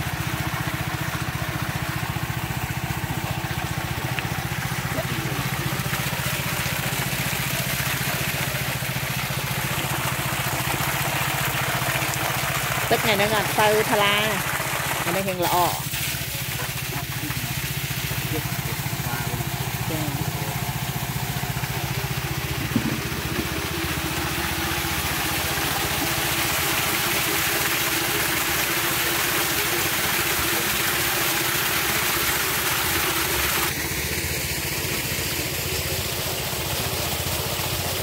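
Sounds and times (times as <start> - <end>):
water from hose splashing: 0.0 - 38.0
motor drone: 16.3 - 38.0.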